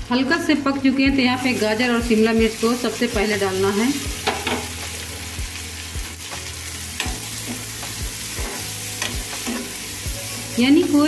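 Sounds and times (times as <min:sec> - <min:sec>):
vegetables sizzling in a frying pan: 0:00.0 - 0:11.0
spatula scraping and clicking on pan: 0:07.0 - 0:09.8.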